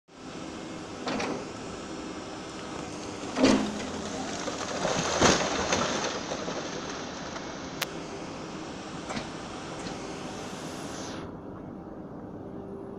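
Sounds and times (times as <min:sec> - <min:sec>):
excavator machine noise: 0:00.1 - 0:12.9
walls crashing and rubble falling: 0:03.4 - 0:07.4.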